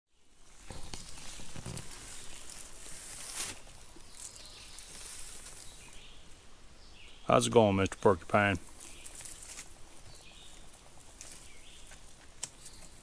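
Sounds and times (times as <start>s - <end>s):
dry leaves rustling and crackling: 0.5s - 6.4s, 8.6s - 13.0s.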